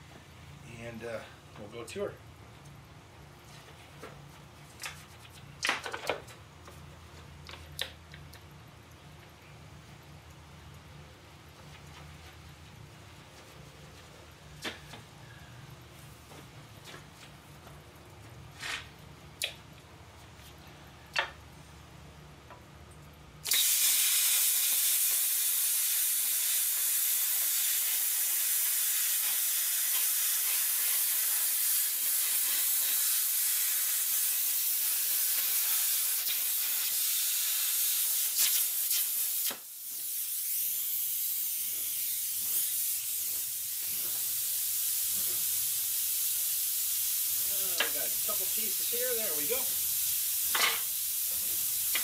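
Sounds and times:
plasma cutter hissing: 0:23.4 - 0:52.0.

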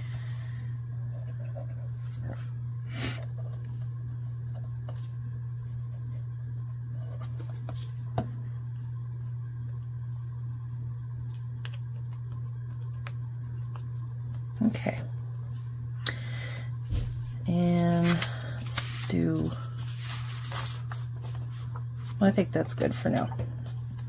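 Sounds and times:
steady low hum: 0:00.0 - 0:24.0
paper envelope rustling: 0:16.9 - 0:24.0.

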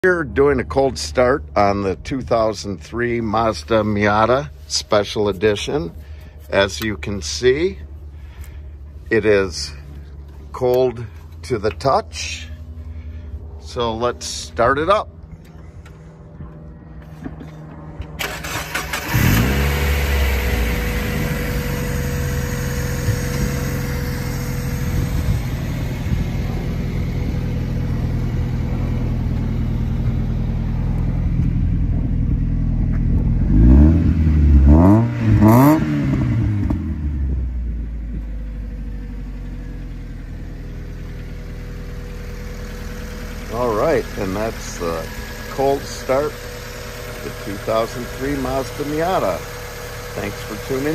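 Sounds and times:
car engine revving and idling: 0:00.0 - 0:50.9
starter motor cranking: 0:18.2 - 0:20.5.

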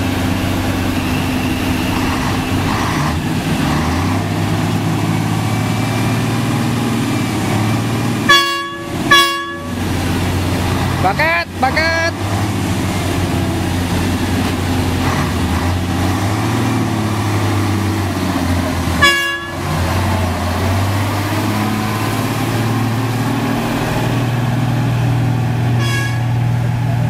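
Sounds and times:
diesel truck engine pulling: 0:00.0 - 0:27.0
truck horn toot: 0:08.2 - 0:09.9, 0:18.9 - 0:19.8, 0:25.7 - 0:26.5.

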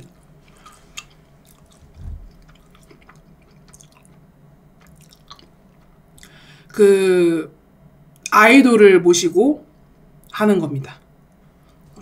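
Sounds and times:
quiet chewing: 0:00.1 - 0:06.4
soft low thump: 0:01.8 - 0:02.4.

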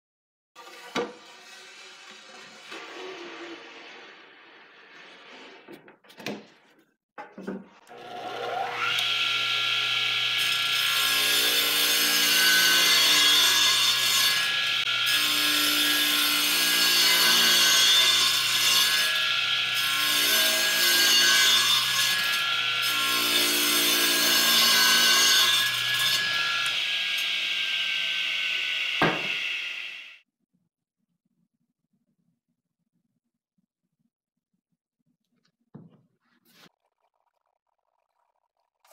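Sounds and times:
radial arm saw cutting wood: 0:00.6 - 0:04.4, 0:07.9 - 0:30.2
knock: 0:29.0 - 0:29.4, 0:35.7 - 0:36.1.

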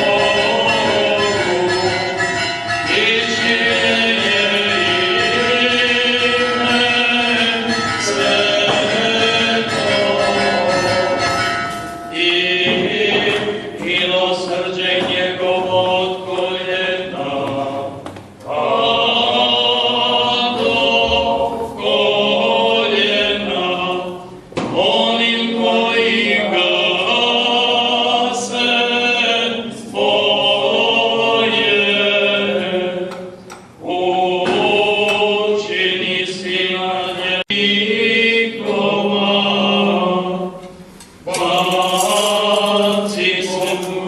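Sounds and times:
congregation singing a hymn: 0:00.0 - 0:44.0.

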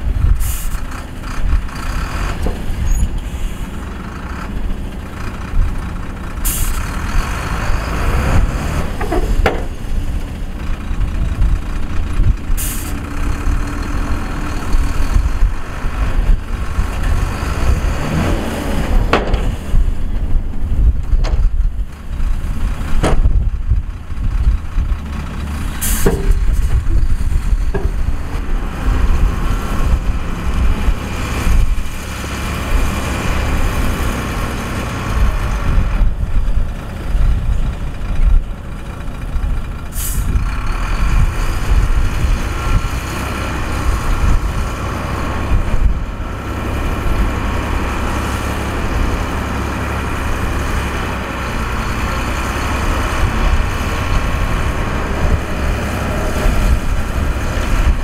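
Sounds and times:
diesel truck engine running: 0:00.0 - 0:58.0
air brake hisses: 0:00.4 - 0:00.8, 0:06.4 - 0:06.8, 0:12.6 - 0:13.0, 0:25.8 - 0:26.2, 0:39.9 - 0:40.3.

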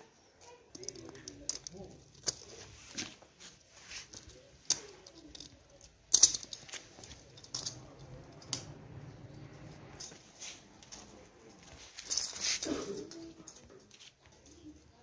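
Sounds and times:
sharp clicks and light knocks: 0:00.4 - 0:03.2, 0:04.1 - 0:09.0.

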